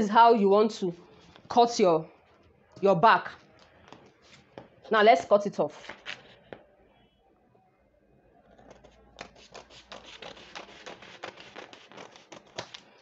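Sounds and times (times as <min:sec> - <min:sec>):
scissors cutting paper: 0:08.7 - 0:12.9.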